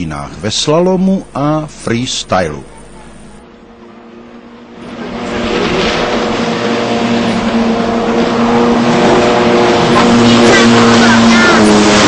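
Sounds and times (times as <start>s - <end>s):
jet ski engine high revs: 2.4s - 12.0s.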